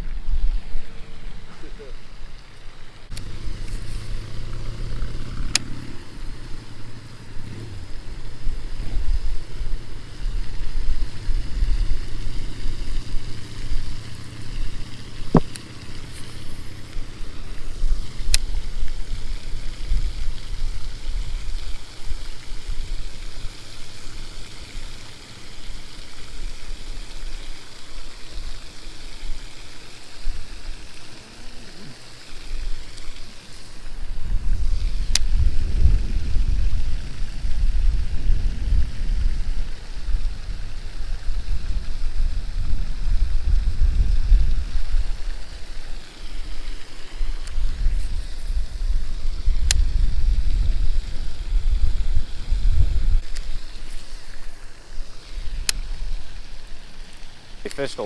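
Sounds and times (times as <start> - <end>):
wind buffeting microphone: 3.1 - 23.6, 33.8 - 53.9.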